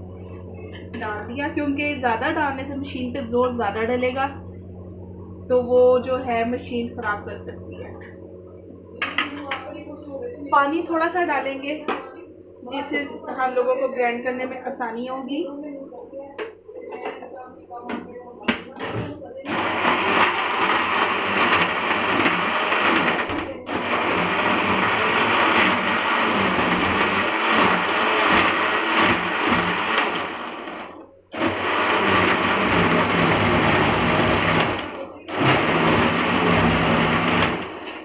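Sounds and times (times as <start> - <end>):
blender grinding: 18.8 - 38.0.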